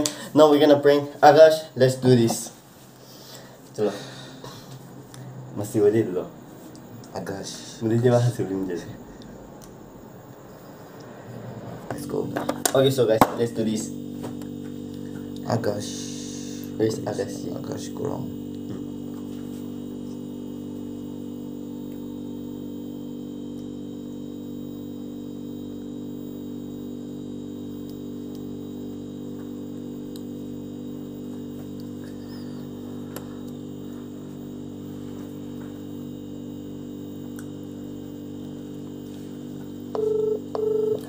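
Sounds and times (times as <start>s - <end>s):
electrical mains hum: 0.0s - 41.0s.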